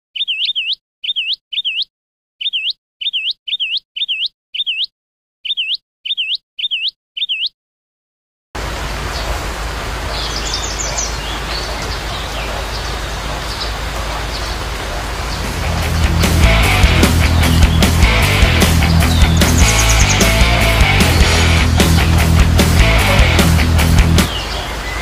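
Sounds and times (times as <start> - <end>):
high bird-like chirps: 0.1 - 7.6, 16.0 - 21.8
outdoor ambience hiss: 8.6 - 16.6.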